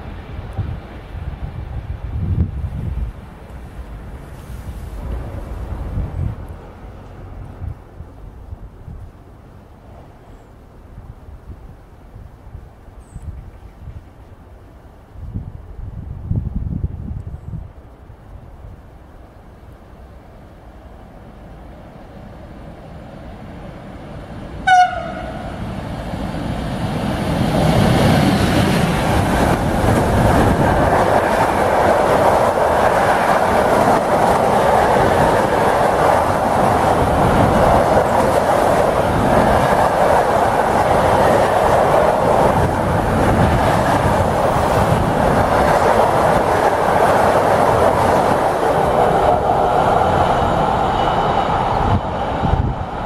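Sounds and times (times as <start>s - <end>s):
freight train passing: 0.0s - 53.0s
train horn blast: 24.6s - 25.6s.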